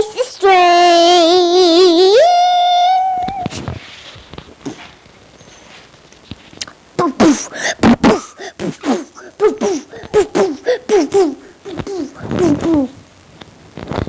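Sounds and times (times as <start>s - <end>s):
child making wordless sounds: 0.0s - 3.5s, 7.0s - 7.5s, 8.8s - 13.0s.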